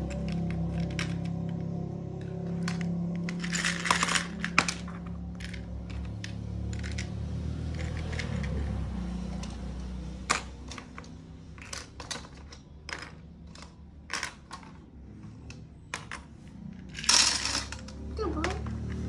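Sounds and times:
plastic pieces clattering: 0.0 - 1.6, 2.2 - 7.1, 10.2 - 14.9, 15.5 - 19.0
plastic bricks clicking: 10.3 - 14.8.

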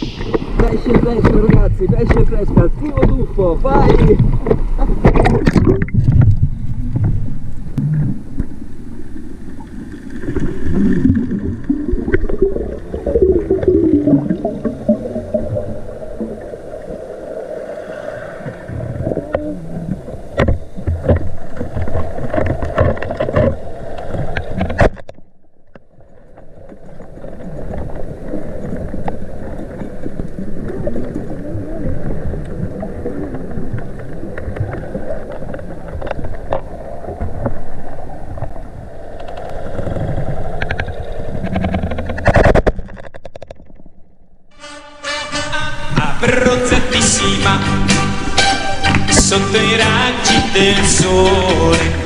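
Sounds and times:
water rushing underwater: 0.0 - 44.3
sharp clicks and knocks: 40.6 - 44.0.

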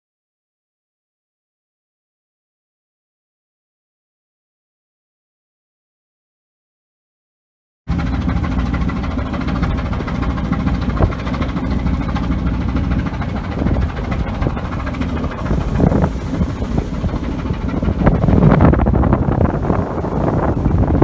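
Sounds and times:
boat engine rumbling: 7.9 - 21.0.

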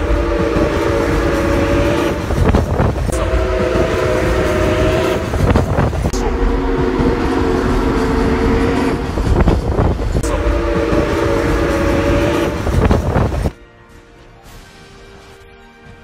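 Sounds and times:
train rumbling on rails: 0.0 - 16.0
steam locomotive chime whistle: 3.1 - 5.4, 10.2 - 12.9.

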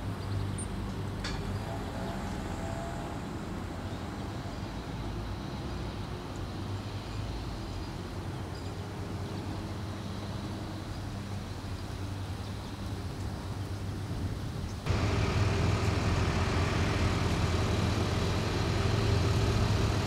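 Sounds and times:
engine humming at idle: 14.8 - 20.0.

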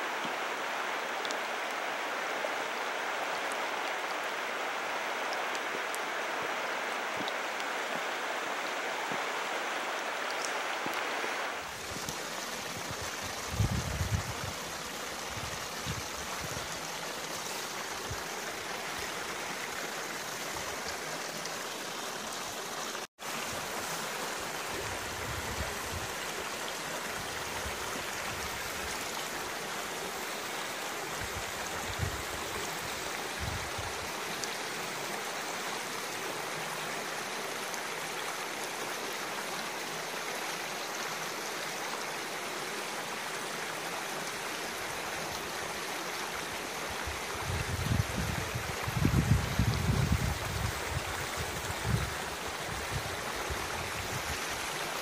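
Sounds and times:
stream running over stones: 0.0 - 55.0.

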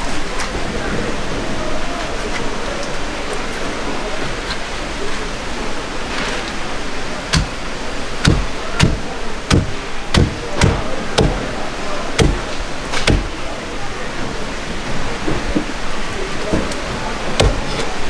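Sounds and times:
steady background hiss: 0.0 - 18.0
knife chopping on wooden block: 7.3 - 7.6, 8.2 - 11.4, 12.2 - 12.4, 13.0 - 13.3.

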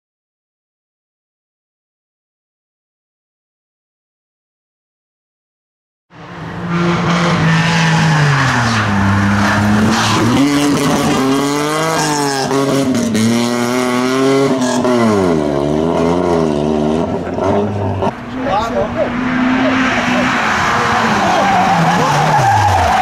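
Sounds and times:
rally car engine revving: 6.1 - 23.0.

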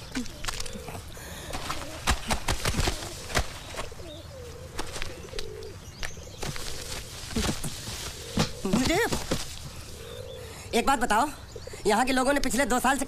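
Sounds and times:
pigeons cooing: 0.0 - 12.4.

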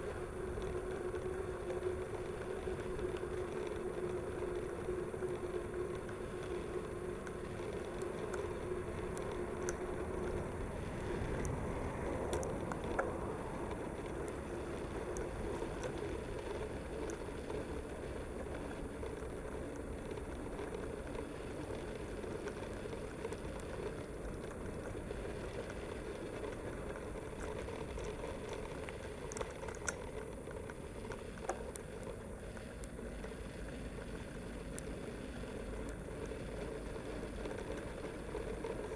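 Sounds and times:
bike rolling and rattling: 0.0 - 38.9.

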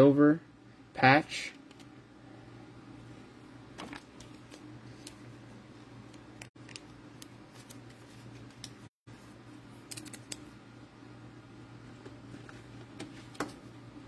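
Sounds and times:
low electrical hum: 0.0 - 14.0
trading cards clicking and rustling: 9.8 - 10.5.

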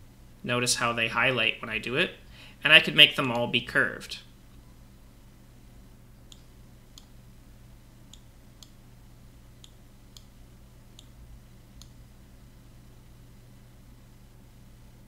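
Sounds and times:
low steady hum: 0.0 - 15.0
faint computer mouse clicks: 6.3 - 7.1, 9.6 - 10.3.

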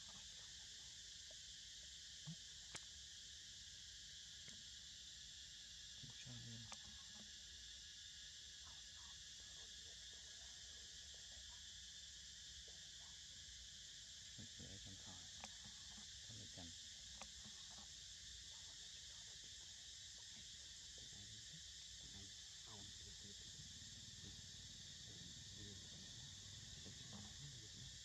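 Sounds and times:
insect chorus chirring: 0.0 - 28.0.

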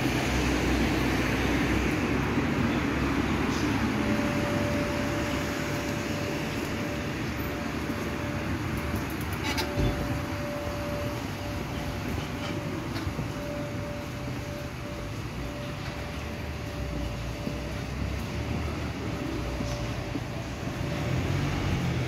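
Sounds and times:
low traffic rumble: 0.0 - 22.0.

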